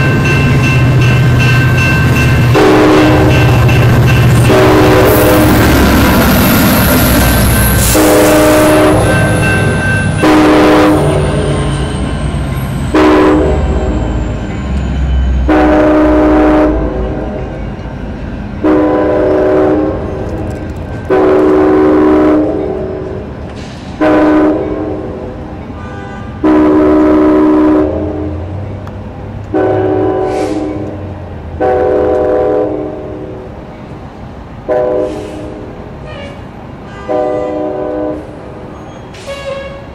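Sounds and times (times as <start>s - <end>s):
locomotive engine and wheels rumbling: 0.0s - 39.9s
locomotive air horn blasts: 2.6s - 3.4s, 4.4s - 5.5s, 7.8s - 9.3s, 10.2s - 11.6s, 12.9s - 14.0s, 15.4s - 17.0s, 18.6s - 20.2s, 21.1s - 22.9s, 24.0s - 25.1s, 25.8s - 28.4s, 29.5s - 31.0s, 31.6s - 33.1s, 34.7s - 38.4s, 39.2s - 39.9s.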